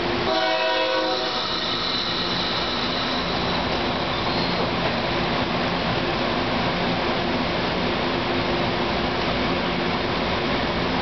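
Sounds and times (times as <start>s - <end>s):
train wheel and rail noise: 0.0s - 11.0s
thin high whine: 1.0s - 4.7s.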